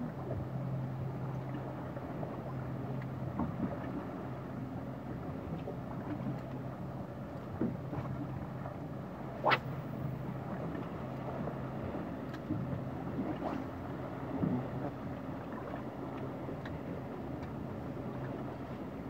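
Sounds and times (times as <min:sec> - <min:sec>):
boat engine humming: 0:00.0 - 0:19.0.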